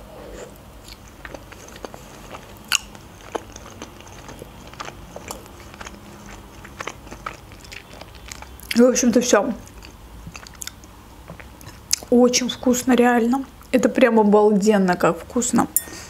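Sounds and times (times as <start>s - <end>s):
chewing with wet mouth clicks: 0.8s - 8.9s, 9.6s - 12.1s.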